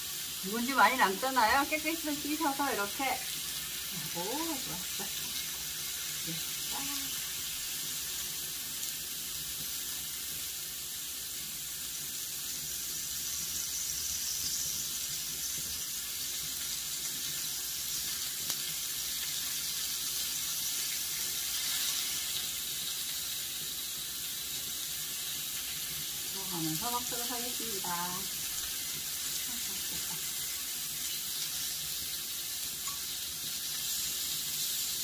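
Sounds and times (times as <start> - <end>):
meat sizzling on a grill pan: 0.0 - 35.0.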